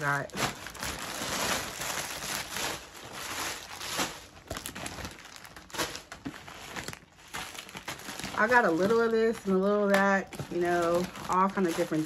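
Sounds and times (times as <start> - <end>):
packaging rustling and crinkling: 0.0 - 12.0.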